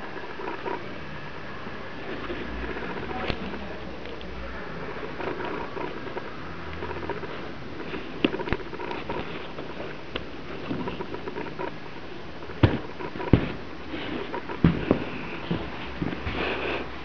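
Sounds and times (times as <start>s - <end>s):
fingers rubbing leather boot: 5.1s - 17.0s
sharp knocks: 12.6s - 13.6s.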